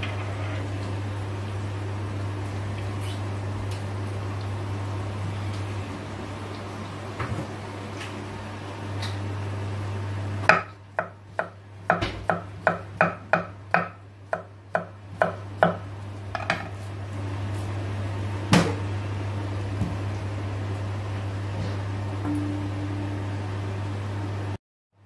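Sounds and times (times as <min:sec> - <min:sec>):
knife chopping on cutting board: 0:10.4 - 0:16.7
low hum: 0:19.2 - 0:24.6.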